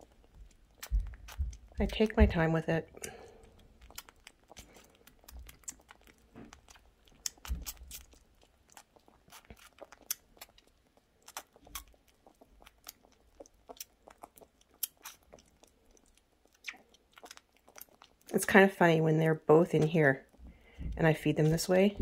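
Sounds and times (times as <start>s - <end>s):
wet smacking clicks: 0.0s - 2.0s, 3.0s - 18.3s
soft thumps: 20.4s - 22.0s.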